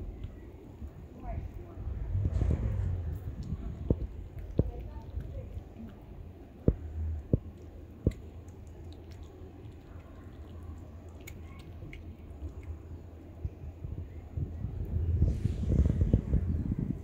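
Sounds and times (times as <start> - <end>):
low steady rumble: 0.0 - 17.0
cat chewing wet food: 3.2 - 13.9.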